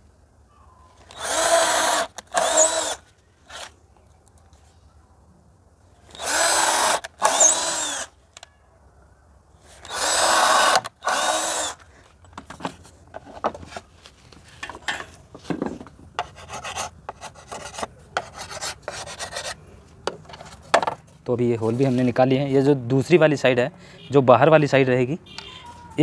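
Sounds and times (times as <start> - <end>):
cordless drill boring wood: 1.1 - 3.7, 6.1 - 8.1, 9.8 - 11.8
chisel scraping wood: 16.2 - 19.6.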